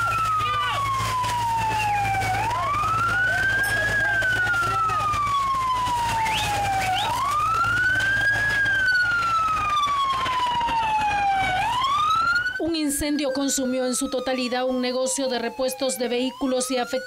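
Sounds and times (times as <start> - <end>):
emergency siren wailing: 0.0 - 17.0.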